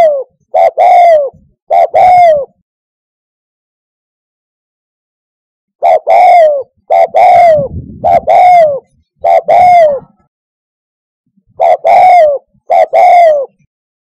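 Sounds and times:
dove cooing: 0.0 - 2.6, 5.8 - 10.3, 11.5 - 13.7.

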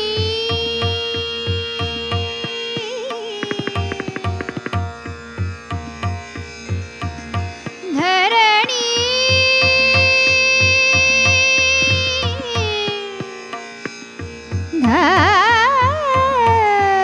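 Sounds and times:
woman singing: 0.0 - 4.6, 7.8 - 13.7, 14.7 - 17.0
tabla beat: 0.0 - 17.0.

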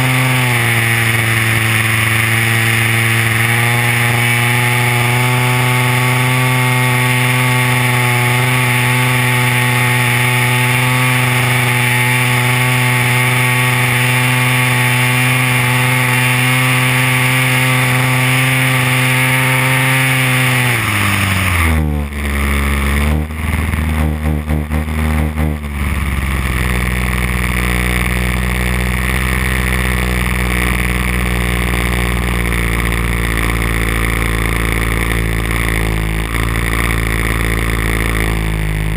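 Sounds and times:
model plane engine running: 0.0 - 38.9.

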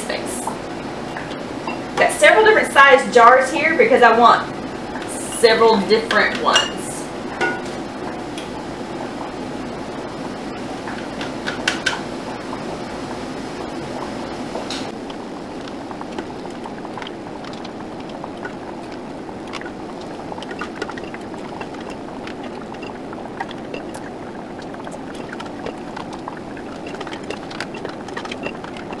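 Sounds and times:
canner water boiling: 0.0 - 29.0.

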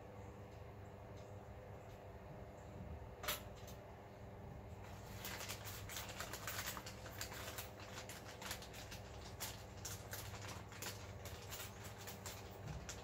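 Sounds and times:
small metal clicks and rustles: 4.8 - 13.0.

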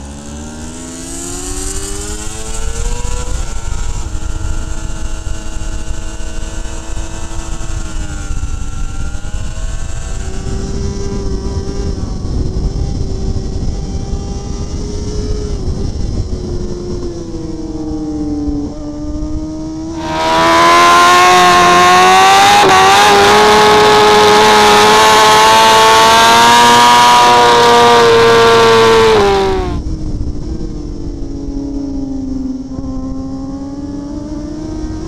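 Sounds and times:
loud high-revving engine: 0.0 - 35.0
motorcycle engine at race pace: 0.0 - 35.0
wind rush: 1.3 - 34.0.

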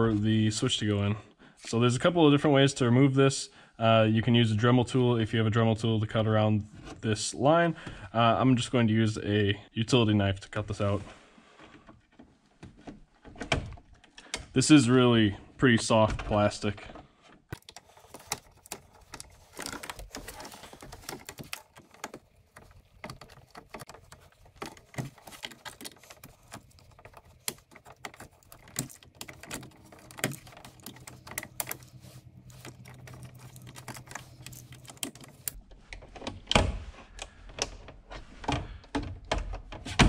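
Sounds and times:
small clicks and scrapes: 16.9 - 36.3
knife scraping and cutting plastic: 17.5 - 35.6.

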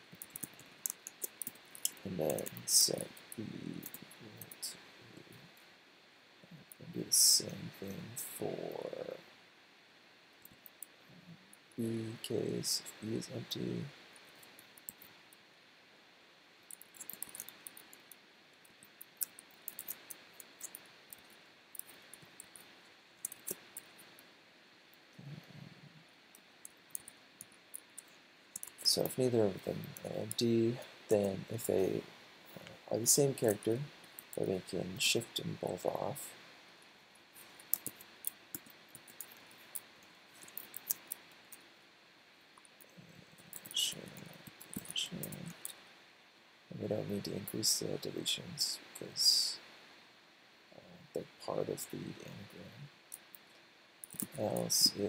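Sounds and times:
low hiss: 0.0 - 55.0
keyboard typing: 0.1 - 2.7, 16.7 - 18.1, 23.2 - 23.8, 37.6 - 39.4.

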